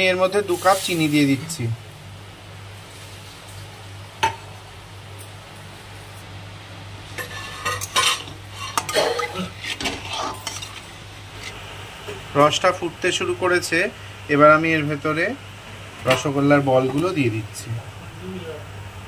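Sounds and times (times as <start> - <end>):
steady low hum: 0.0 - 19.0
metal spatula scraping pan: 7.2 - 11.5.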